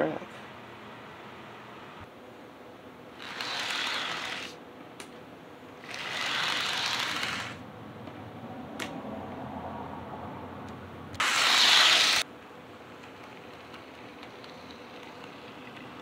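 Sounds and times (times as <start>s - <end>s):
model train whirring on rails: 3.2s - 4.5s, 5.8s - 7.6s, 11.2s - 12.2s.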